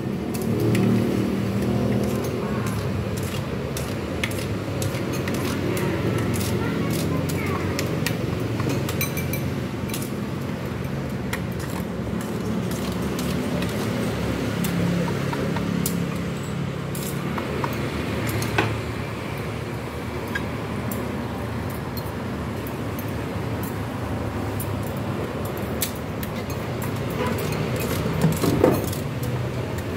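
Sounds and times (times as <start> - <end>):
low rumble of traffic: 0.0 - 29.9
clinks of metal tongs and bowls: 1.6 - 7.4, 8.6 - 10.1, 25.8 - 29.1.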